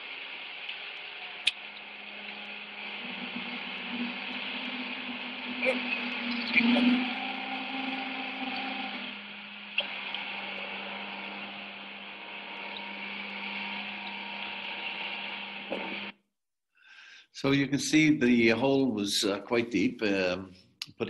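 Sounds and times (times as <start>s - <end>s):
machine hum with low drone: 0.1s - 16.1s.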